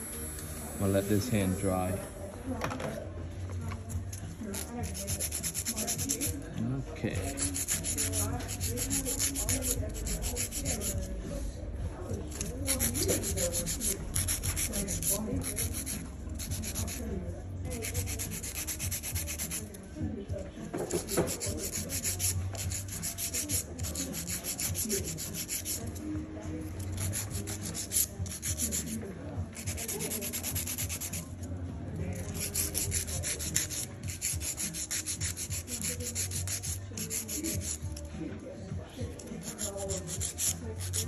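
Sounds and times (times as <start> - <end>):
nail file rasping on nails: 4.4 - 6.4, 7.2 - 11.1, 12.3 - 17.1, 17.7 - 19.7, 20.8 - 26.1, 26.8 - 31.4, 32.0 - 38.1, 39.2 - 41.0.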